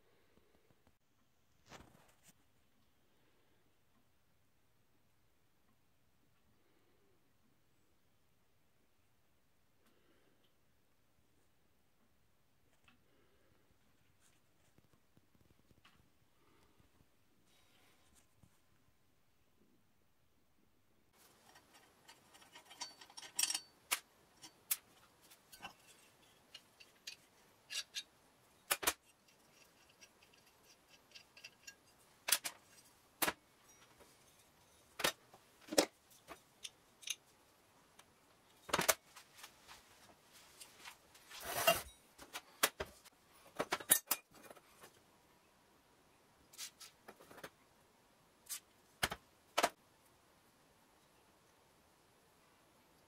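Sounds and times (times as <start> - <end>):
metal scrape: 21.2 - 33.0, 40.4 - 42.0
metal parts clicking and clinking: 21.3 - 32.9, 36.2 - 37.2, 43.6 - 44.6.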